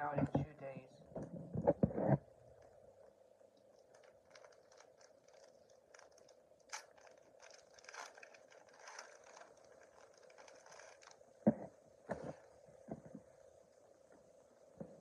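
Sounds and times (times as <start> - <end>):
faint steady hum: 0.0 - 15.0
foil wrapper crinkling: 3.6 - 11.3.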